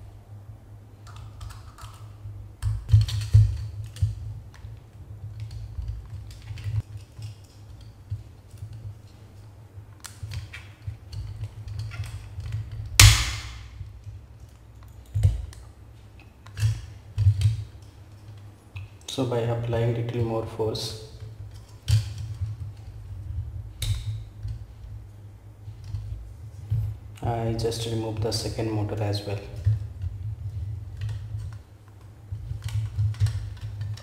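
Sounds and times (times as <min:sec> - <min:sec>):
sharp plastic crack: 0:10.0 - 0:14.1.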